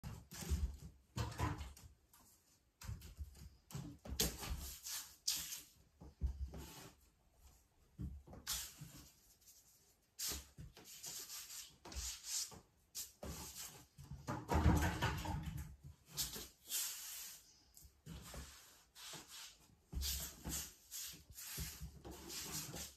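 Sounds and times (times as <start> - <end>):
paintbrush scratching on canvas: 8.5 - 13.9, 18.2 - 22.9.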